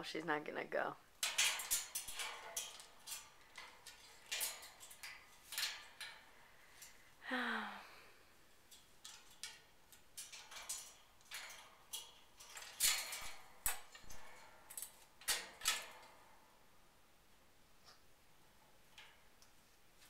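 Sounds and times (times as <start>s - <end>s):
parrot tapping metal cage bars: 1.1s - 7.0s, 8.7s - 16.6s.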